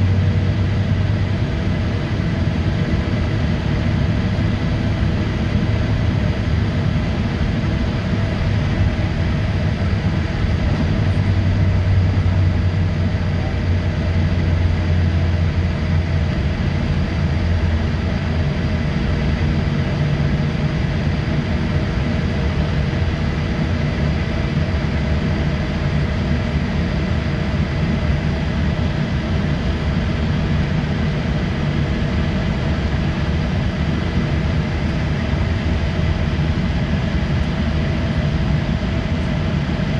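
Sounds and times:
jet engines at takeoff power: 0.0s - 39.9s.

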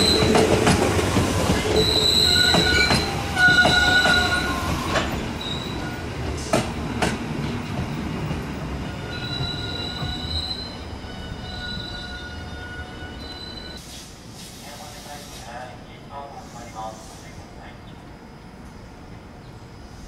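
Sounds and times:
train wheels squealing: 0.0s - 0.6s, 1.2s - 6.1s, 8.8s - 14.1s
rail clacks: 0.0s - 13.8s
train rumble: 0.0s - 20.0s.

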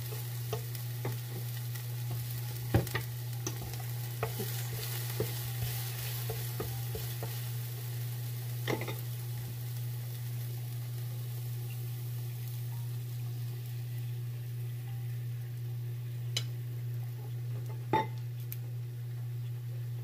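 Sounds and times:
egg sizzling in oil: 0.0s - 19.2s
steady low hum: 0.0s - 20.0s
wooden spatula scraping a pan: 2.1s - 7.7s.

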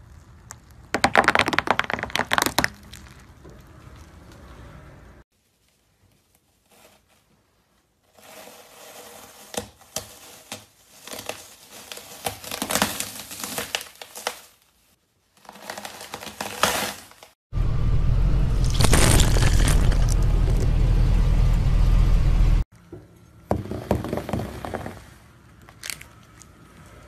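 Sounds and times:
loud low rumble: 17.5s - 22.6s
foam crunching under a boot: 18.6s - 20.8s.

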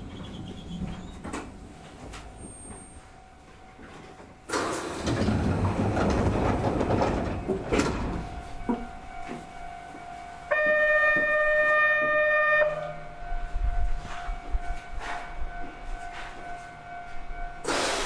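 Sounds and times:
train horn: 10.5s - 13.2s
loud rush of air: 17.6s - 18.0s.

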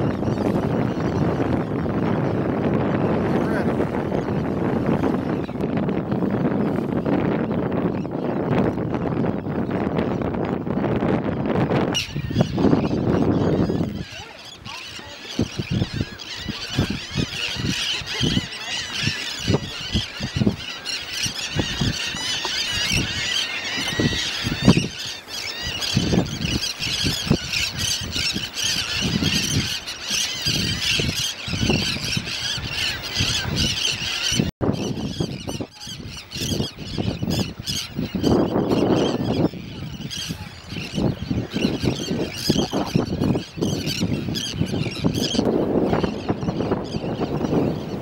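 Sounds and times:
terns calling in chorus: 11.9s - 48.0s.

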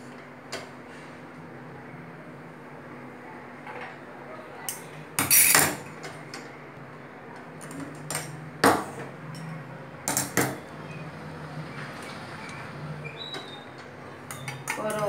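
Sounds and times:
metal utensils clinking: 5.2s - 5.8s.

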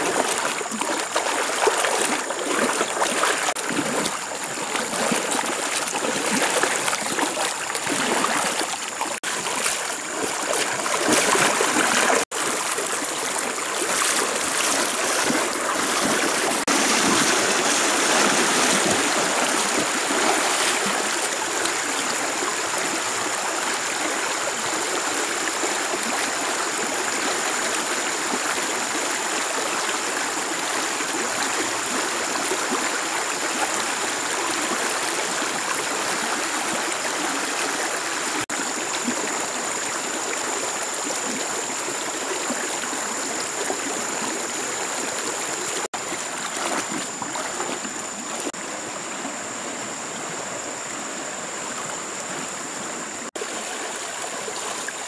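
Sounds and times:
river rushing over rocks: 0.0s - 26.0s.

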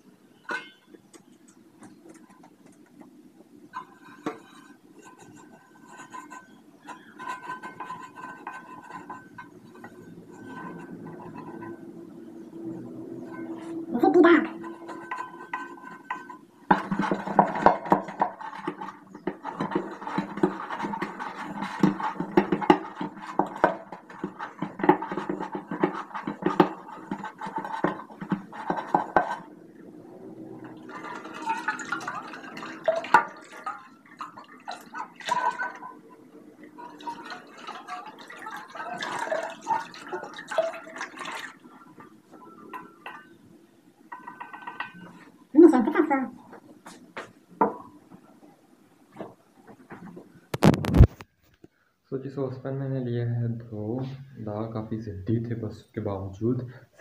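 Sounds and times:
scouring pad scrubbing saucepan: 3.7s - 43.4s, 44.0s - 48.4s.

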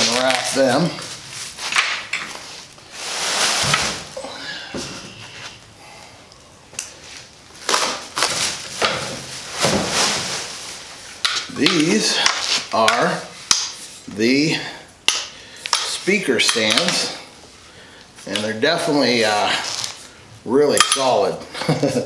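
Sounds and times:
plastic wrapping crinkling: 0.0s - 4.2s, 7.0s - 11.5s.

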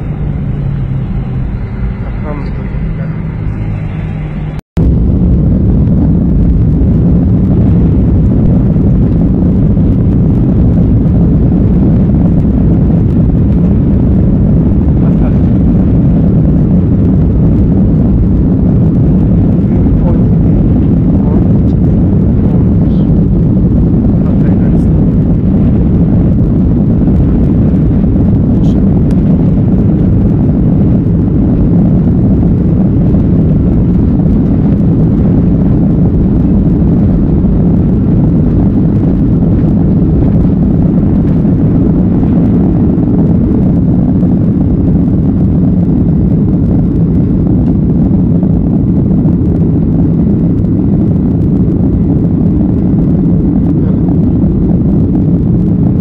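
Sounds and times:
jet engines rumbling in cabin: 0.0s - 56.0s.

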